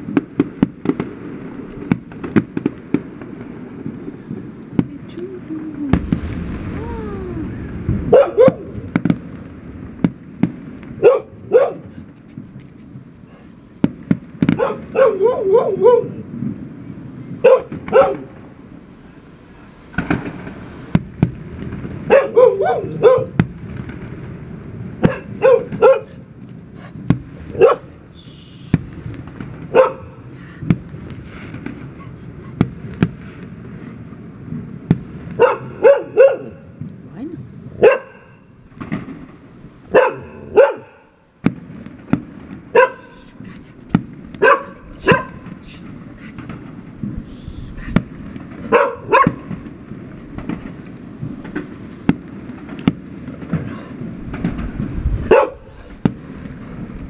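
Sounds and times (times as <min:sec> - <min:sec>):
fireworks bangs and cracks: 0:00.0 - 0:57.0
dog barking: 0:08.1 - 0:08.7, 0:11.0 - 0:12.0, 0:14.6 - 0:16.2, 0:17.4 - 0:18.3, 0:22.1 - 0:23.4, 0:25.0 - 0:26.2, 0:27.6 - 0:27.9, 0:29.7 - 0:30.1, 0:35.4 - 0:36.6, 0:37.8 - 0:38.4, 0:39.9 - 0:41.1, 0:42.7 - 0:43.2, 0:44.4 - 0:45.4, 0:48.7 - 0:49.5, 0:55.3 - 0:55.7.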